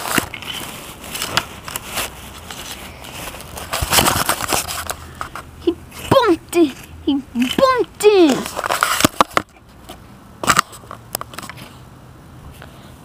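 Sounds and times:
toy scraping through dry grass: 0:00.0 - 0:09.4.

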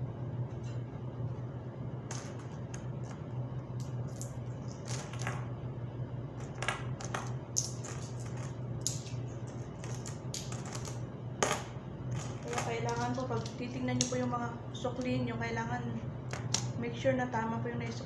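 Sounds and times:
metal coins clinking: 0:03.8 - 0:05.4, 0:06.4 - 0:09.2, 0:09.8 - 0:13.6.

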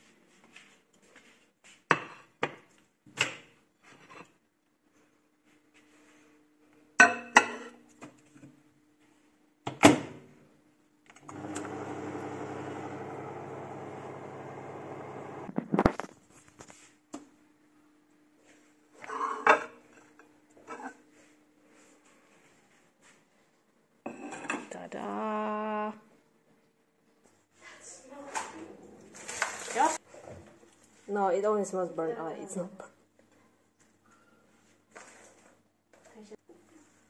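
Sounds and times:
microwave humming: 0:11.2 - 0:15.6.

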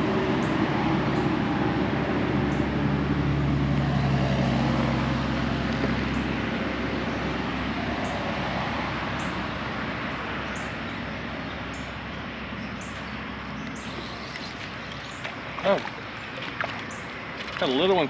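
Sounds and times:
passing engine rumble: 0:00.0 - 0:18.0.

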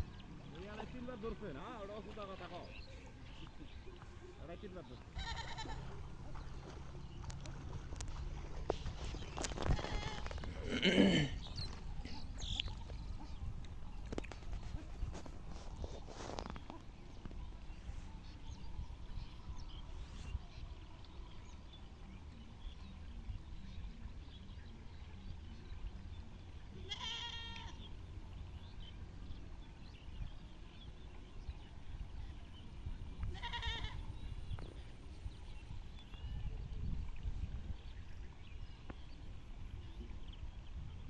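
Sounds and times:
animal bleating: 0:05.2 - 0:06.0, 0:09.6 - 0:11.3, 0:26.8 - 0:27.8, 0:33.3 - 0:34.1.

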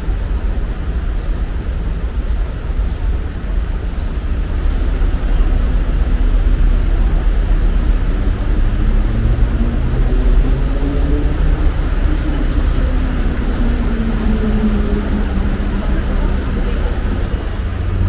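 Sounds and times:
traffic rumble: 0:00.0 - 0:18.0
engine speeding up: 0:05.0 - 0:18.0.

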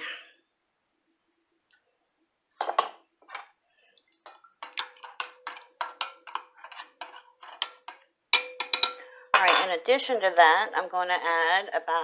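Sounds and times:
spoon clinking against glass bowl: 0:04.6 - 0:09.7.

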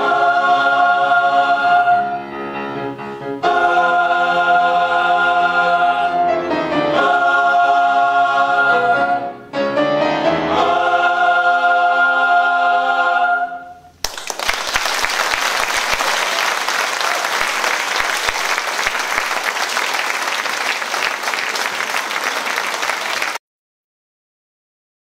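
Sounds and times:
choir singing a chord: 0:00.0 - 0:13.9
audience clapping: 0:14.0 - 0:23.4.

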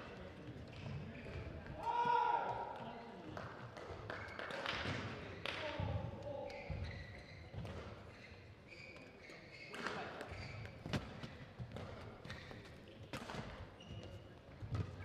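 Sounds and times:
shoes squeaking on court: 0:06.5 - 0:15.0.

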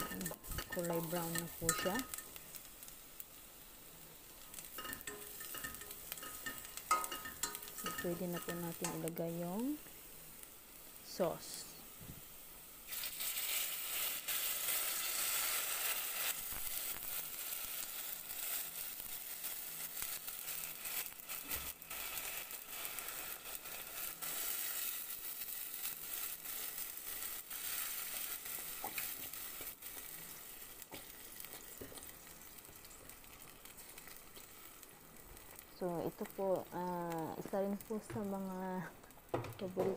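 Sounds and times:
sauce sizzling in hot pan: 0:00.0 - 0:39.5.

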